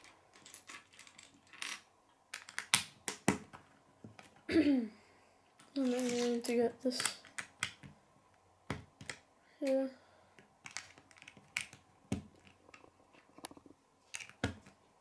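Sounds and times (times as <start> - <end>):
plastic bricks clicking: 0.4 - 3.4, 10.4 - 14.8.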